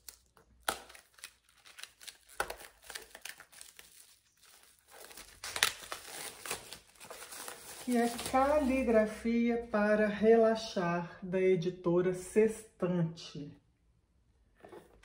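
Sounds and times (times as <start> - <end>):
plastic wrap crinkling: 0.0 - 9.0.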